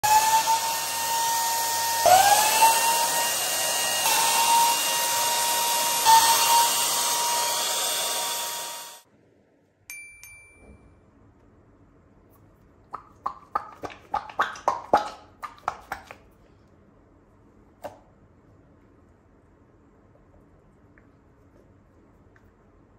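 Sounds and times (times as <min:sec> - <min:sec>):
electric balloon pump whining: 0:00.0 - 0:09.0.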